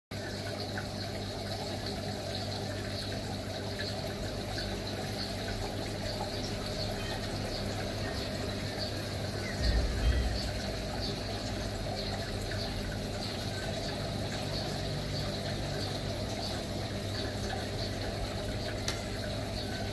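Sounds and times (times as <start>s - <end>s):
aquarium pump humming: 0.2s - 19.9s
water trickling: 0.2s - 19.9s
low bump: 9.6s - 11.1s.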